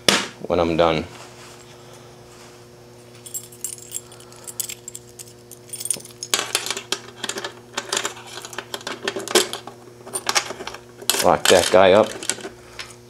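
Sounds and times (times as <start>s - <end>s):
faint steady hum: 0.0s - 13.0s
keys jangling: 3.2s - 8.6s.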